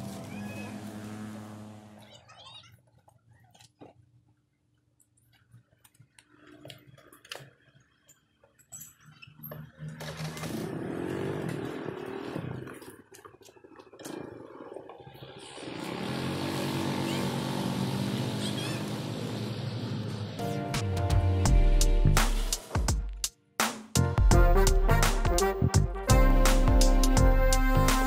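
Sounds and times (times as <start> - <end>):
motor scooter engine revving: 0.0 - 2.3, 9.3 - 20.5.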